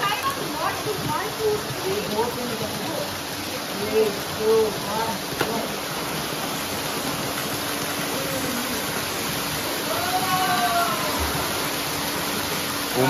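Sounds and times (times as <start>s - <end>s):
water splashing from swimmers: 0.0s - 13.0s
faint voice calling out: 8.1s - 8.9s.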